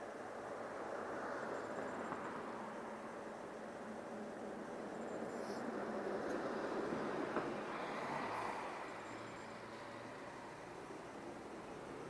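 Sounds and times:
street traffic: 0.0s - 12.0s
car driving past: 5.2s - 12.0s.

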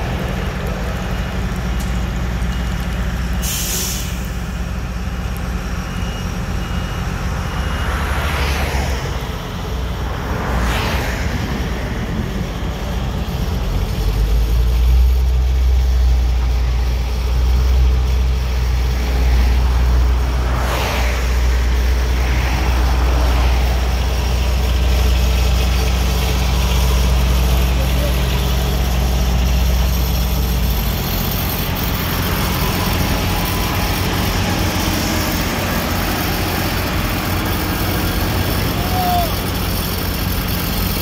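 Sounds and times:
machine engine humming: 11.4s - 41.0s.

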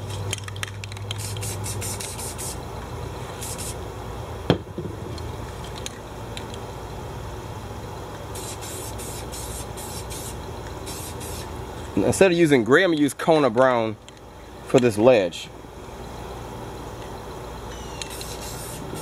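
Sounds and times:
spray can hissing: 0.9s - 2.6s, 3.3s - 3.8s, 8.3s - 11.5s, 17.9s - 19.0s.

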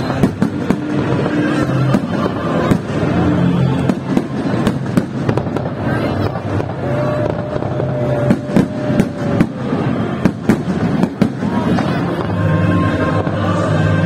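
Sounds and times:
fireworks bangs and crackles: 0.0s - 14.0s
music playing: 0.0s - 14.0s.

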